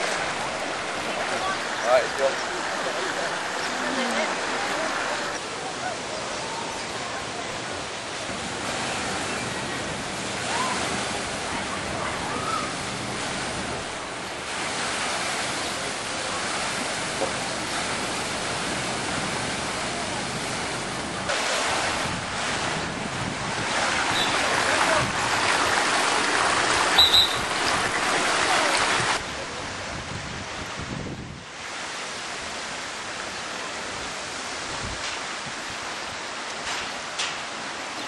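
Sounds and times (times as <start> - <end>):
water rushing down slides: 0.0 - 29.9.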